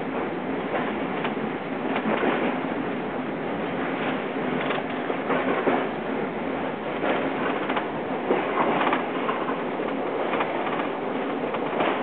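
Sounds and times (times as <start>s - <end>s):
tram wheels rattling and rumbling: 0.0s - 12.0s.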